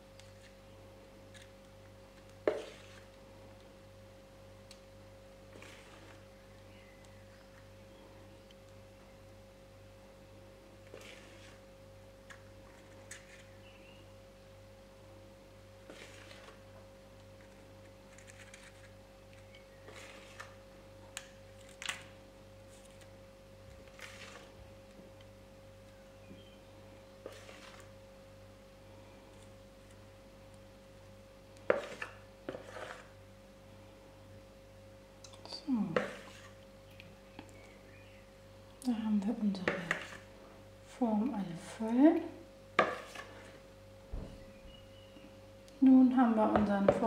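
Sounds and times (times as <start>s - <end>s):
electrical hum with high whine: 0.0s - 47.0s
spoon scraping batter: 0.2s - 3.6s, 5.4s - 7.7s, 10.8s - 13.8s, 15.8s - 22.1s, 23.7s - 25.0s, 26.4s - 28.0s, 31.6s - 33.2s, 35.4s - 37.8s, 39.3s - 43.7s
metal spoon scraping bowl: 31.7s - 33.2s.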